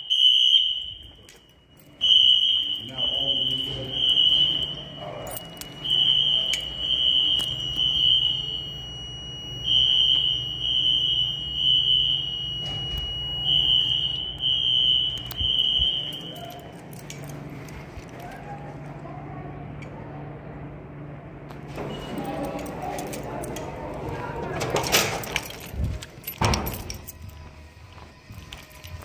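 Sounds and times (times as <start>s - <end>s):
fire alarm horn pulses: 0.0s - 17.8s.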